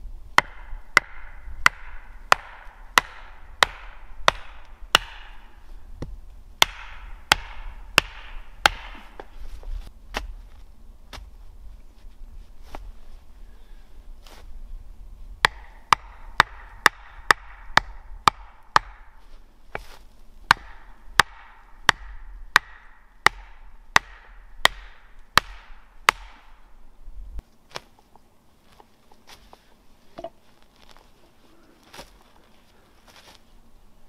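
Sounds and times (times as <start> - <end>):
wooden stake being pounded: 0.4 - 10.4, 15.4 - 26.6.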